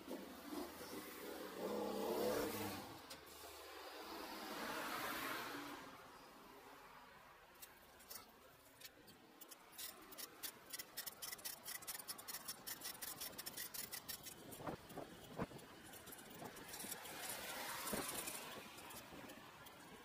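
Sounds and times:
bicycle clicking and rattling: 0:07.6 - 0:20.0.

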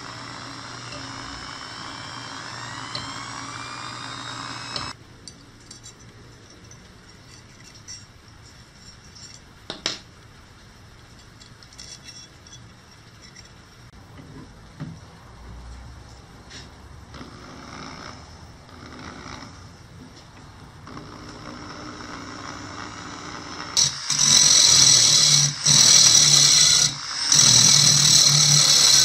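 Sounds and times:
drill press running: 0:00.0 - 0:05.0, 0:20.9 - 0:29.0.

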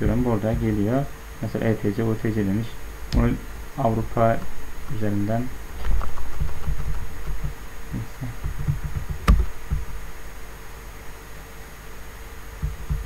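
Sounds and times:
soft low thuds: 0:00.0 - 0:01.0, 0:03.1 - 0:03.5, 0:12.6 - 0:13.0
faint hiss and hum: 0:00.0 - 0:13.0.

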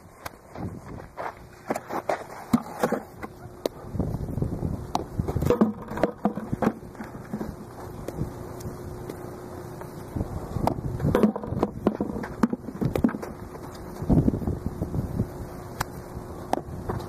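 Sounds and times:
footwork on dirt: 0:00.0 - 0:04.1
faint steady hum: 0:00.0 - 0:17.0
ball dropped into plastic bucket: 0:05.4 - 0:07.4.

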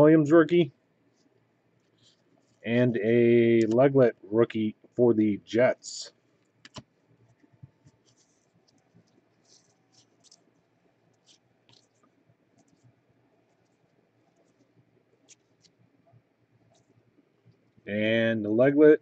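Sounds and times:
cards being shuffled by hand: 0:03.3 - 0:03.9, 0:06.3 - 0:15.9.

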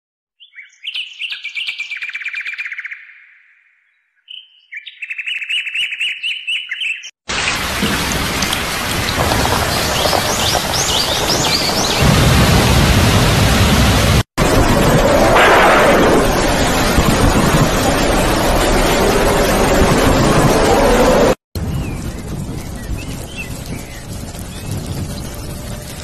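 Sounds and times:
bird chirps: 0:00.4 - 0:07.1
heavy rain: 0:07.3 - 0:26.0.

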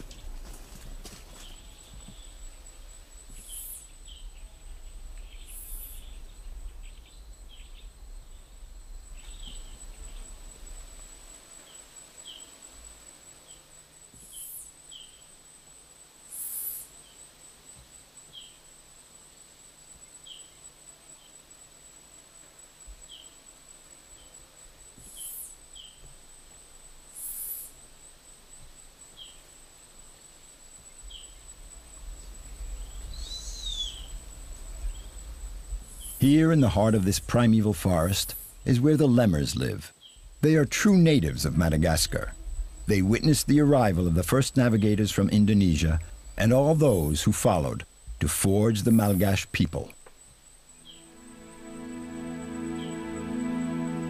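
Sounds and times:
high insect drone: 0:00.0 - 0:54.0
bird chirps: 0:09.1 - 0:10.4, 0:32.8 - 0:34.2
hissing insect buzzes: 0:09.2 - 0:17.1, 0:27.1 - 0:27.8.

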